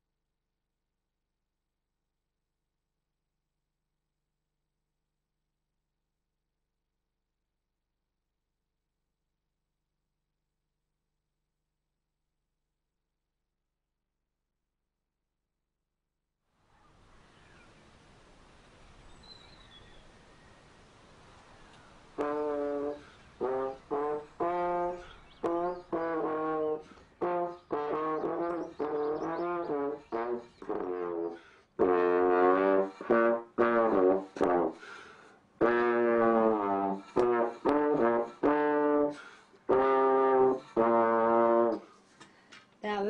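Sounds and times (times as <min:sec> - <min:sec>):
slide trombone melody: 0:22.1 - 0:41.9.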